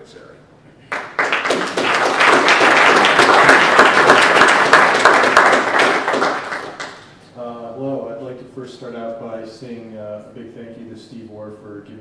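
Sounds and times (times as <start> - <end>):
audience applauding: 0.9 - 7.1.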